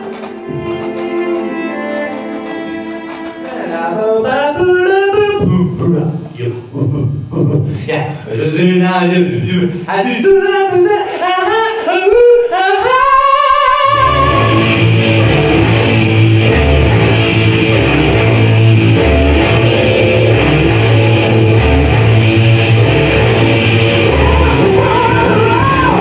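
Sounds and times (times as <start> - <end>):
man singing into microphone: 3.5 - 7.8, 8.4 - 14.8, 24.0 - 26.0
rock music with guitar and bass: 13.9 - 26.0.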